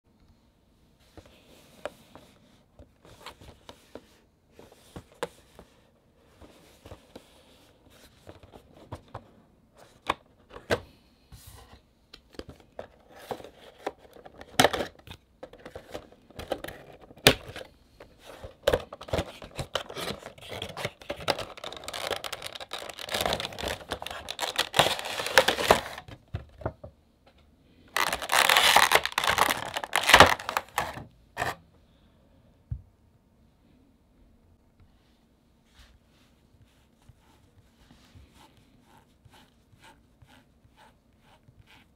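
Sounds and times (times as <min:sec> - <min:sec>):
plastic rustling and crinkling: 0:12.6 - 0:26.2, 0:27.9 - 0:31.6.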